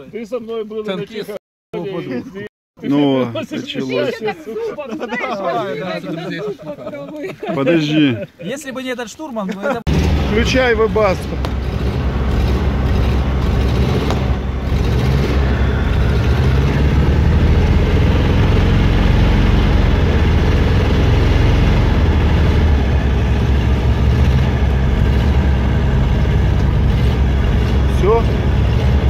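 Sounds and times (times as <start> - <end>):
vehicle engine idling: 9.9 - 29.0.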